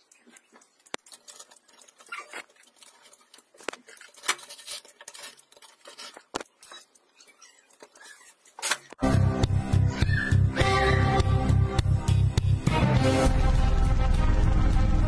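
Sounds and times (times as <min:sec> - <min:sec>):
metal toy rustling and rattling: 0:00.6 - 0:09.0.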